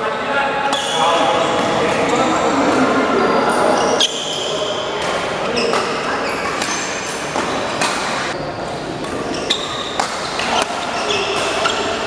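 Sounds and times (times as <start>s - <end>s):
large hall background noise: 0.0s - 12.0s
shoes squeaking on floor: 3.2s - 4.8s, 5.4s - 8.5s, 9.2s - 12.0s
racket hitting shuttlecock: 5.0s - 12.0s.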